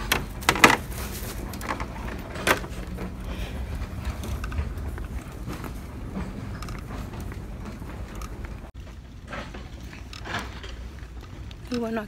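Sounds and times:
shopping cart knocks and clatters: 0:00.0 - 0:03.2
cart wheels rolling: 0:00.0 - 0:12.0.

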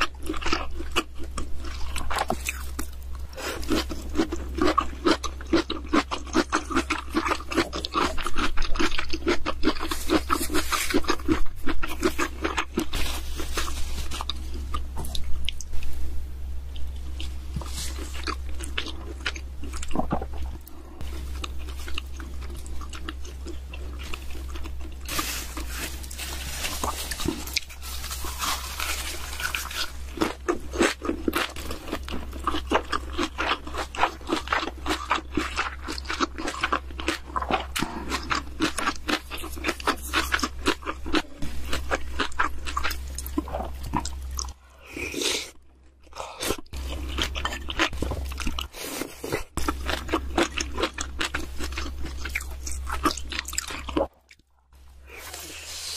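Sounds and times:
low hum: 0:00.0 - 0:48.7
crunching and chewing food: 0:00.0 - 0:55.9.

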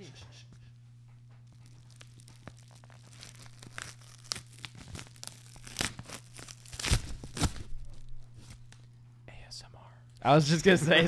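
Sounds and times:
paper crinkling: 0:01.4 - 0:08.9
paper envelope tearing: 0:01.6 - 0:08.7.

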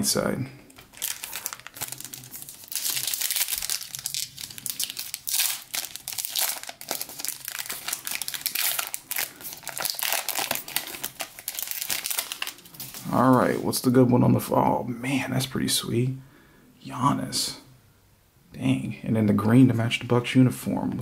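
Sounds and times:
foil wrapper crinkling: 0:00.8 - 0:13.2.

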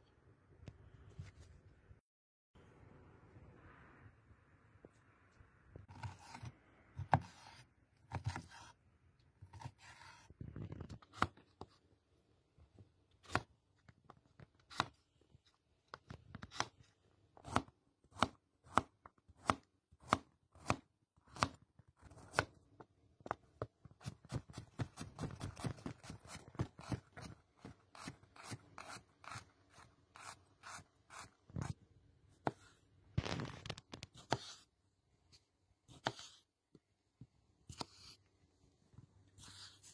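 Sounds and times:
knife chopping on cutting board: 0:05.9 - 0:08.8, 0:17.4 - 0:22.6, 0:24.0 - 0:31.8, 0:35.9 - 0:36.4.

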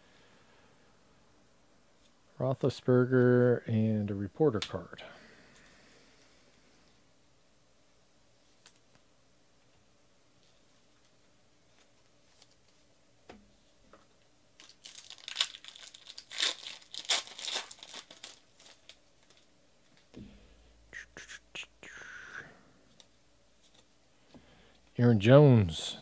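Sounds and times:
cards rustling: 0:14.6 - 0:19.5
foil wrapper crinkling: 0:14.6 - 0:20.0.

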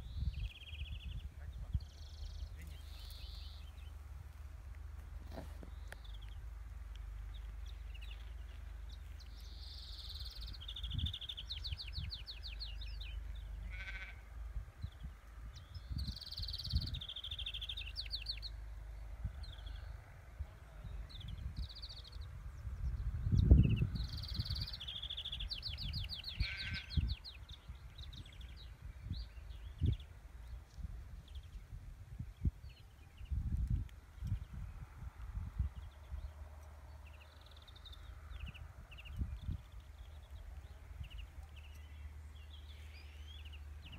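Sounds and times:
finch singing: 0:00.0 - 0:04.0, 0:14.9 - 0:18.7
wind rumble on microphone: 0:00.0 - 0:43.9.

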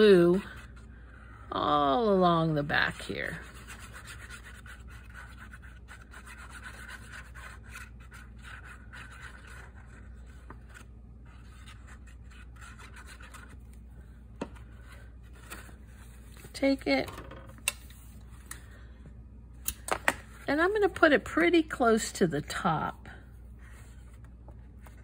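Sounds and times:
applicator scratching on paper: 0:03.0 - 0:13.6.

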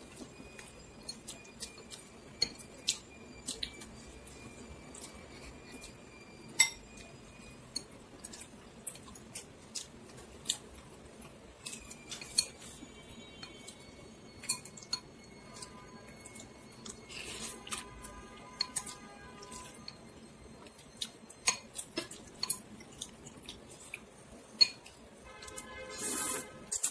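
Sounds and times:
spoon and chopsticks clinking bowl: 0:00.5 - 0:09.5, 0:11.6 - 0:20.1, 0:21.4 - 0:23.9, 0:24.6 - 0:25.6.

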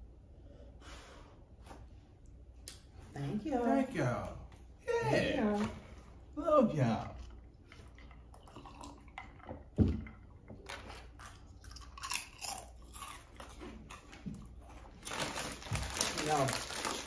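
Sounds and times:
people sipping and swallowing: 0:07.0 - 0:14.6.

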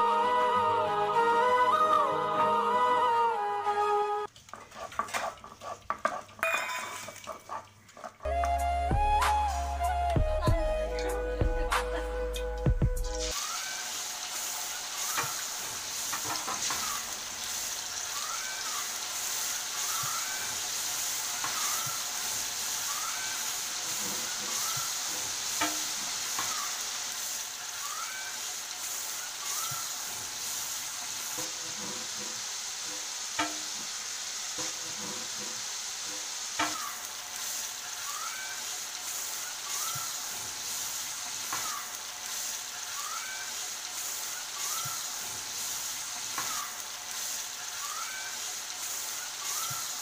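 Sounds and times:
paste sizzling in hot oil: 0:13.0 - 0:50.0.

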